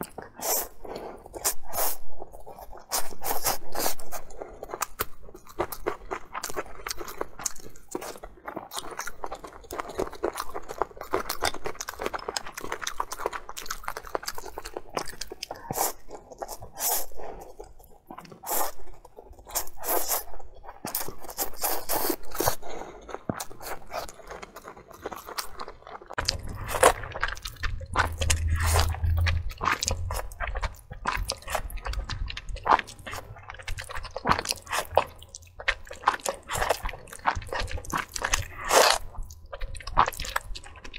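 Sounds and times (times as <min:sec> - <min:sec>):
person chewing food: 0:00.0 - 0:40.9
low hum: 0:26.2 - 0:34.1.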